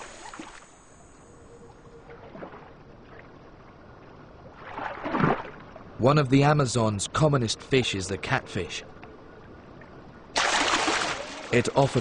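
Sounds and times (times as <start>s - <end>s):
river water lapping: 0.0s - 6.1s, 7.7s - 12.0s
water splashing rush: 10.4s - 12.0s.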